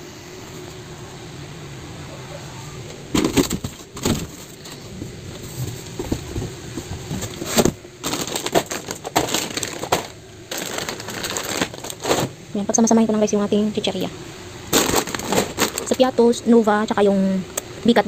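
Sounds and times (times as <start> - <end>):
cardboard flaps rustling: 3.1 - 12.4, 14.7 - 16.0
plastic packets crinkling: 6.9 - 12.4, 14.7 - 16.1.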